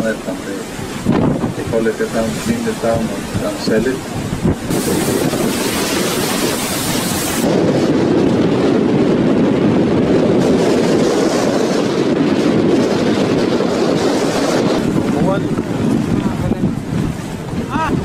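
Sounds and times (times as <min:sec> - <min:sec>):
boat motor: 0:00.0 - 0:08.5, 0:12.6 - 0:18.0
water: 0:00.0 - 0:18.0
wind buffeting microphone: 0:00.0 - 0:18.0.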